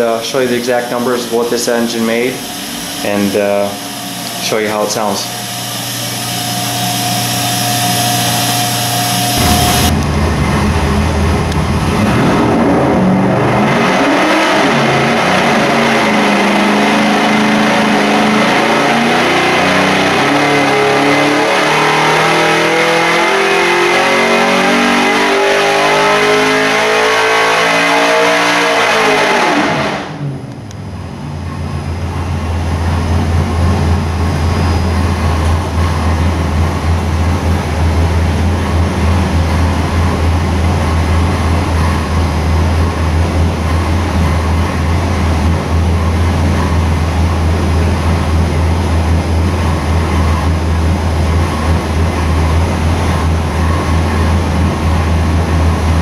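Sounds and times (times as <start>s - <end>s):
engine idling: 0.0s - 13.4s, 30.3s - 56.0s
car engine revving at full throttle: 0.0s - 56.0s.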